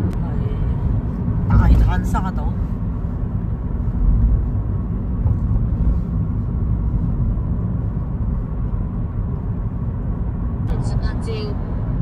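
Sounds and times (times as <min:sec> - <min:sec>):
car rumble from inside cabin: 0:00.0 - 0:12.0.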